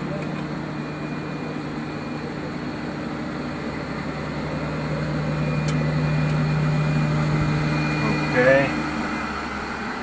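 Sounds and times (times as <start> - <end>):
ventilation fans humming: 0.0 - 10.0
small click: 5.6 - 6.4.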